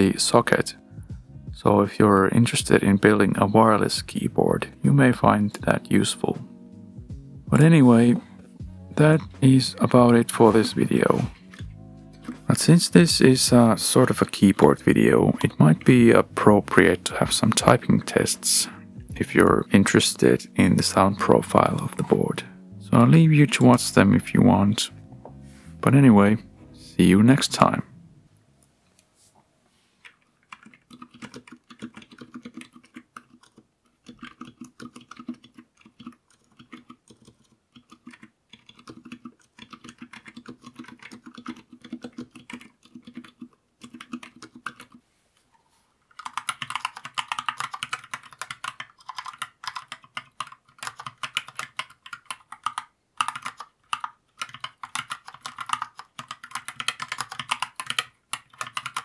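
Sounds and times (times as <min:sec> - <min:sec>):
mechanical keyboard keystroke clacks: 0:30.5 - 0:45.0, 0:46.1 - 0:59.0.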